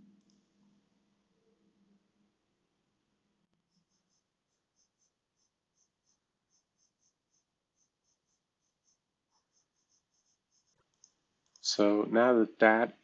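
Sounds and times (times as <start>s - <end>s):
computer mouse clicks: 8.8s - 11.6s.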